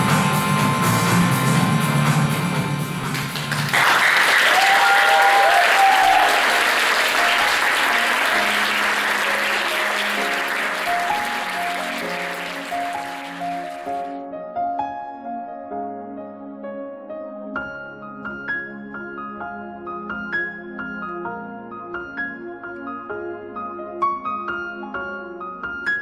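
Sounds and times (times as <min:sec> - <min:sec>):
audience applause: 0:03.0 - 0:14.1
soft slow melodic music: 0:05.5 - 0:26.0.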